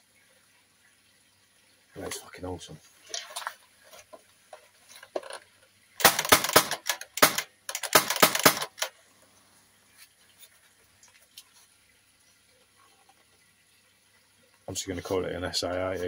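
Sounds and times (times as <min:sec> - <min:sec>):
plastic and metal parts clattering: 0:04.9 - 0:08.9.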